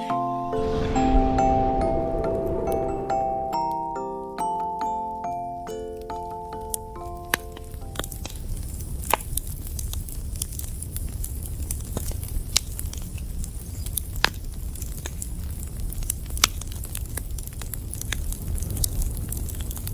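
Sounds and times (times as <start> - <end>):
fire crackling and popping: 4.4 - 19.9.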